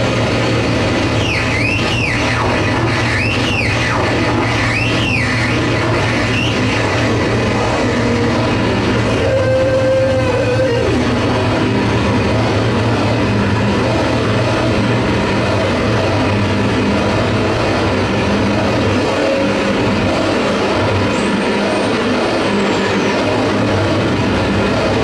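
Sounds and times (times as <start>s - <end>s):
harsh noise music: 0.0s - 25.0s
steady low hum: 0.0s - 25.0s
squealing pitch sweeping: 1.0s - 11.4s.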